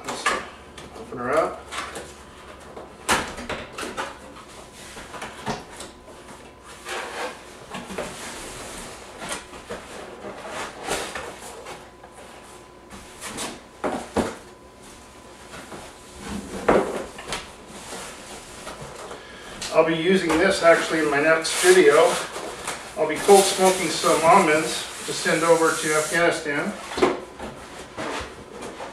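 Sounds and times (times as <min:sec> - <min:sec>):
cardboard rustling and rubbing: 0:20.4 - 0:28.9.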